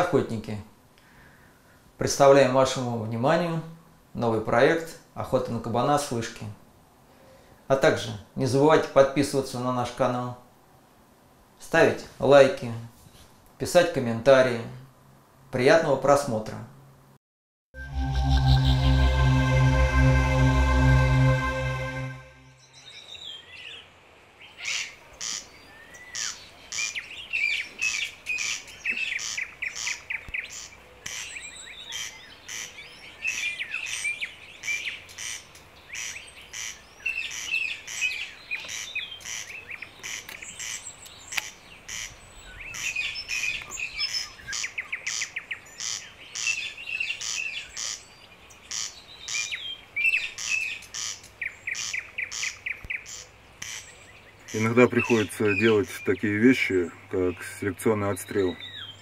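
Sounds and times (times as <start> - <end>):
rapid very high chirps: 17.8 - 22.7
birds singing and twittering: 22.6 - 59.0.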